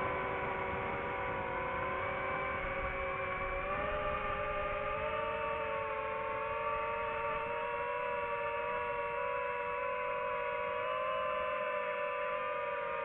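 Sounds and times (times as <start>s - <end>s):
drone motors whining: 2.0s - 11.4s.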